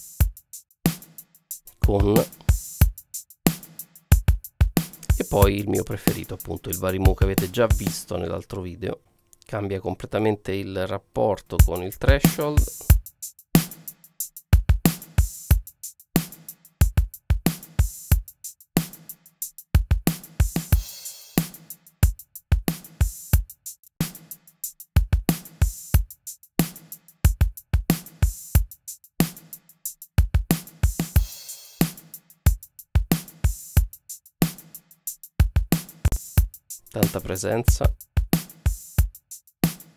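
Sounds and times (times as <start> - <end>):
drum loop: 0.0 - 8.3, 11.5 - 39.9.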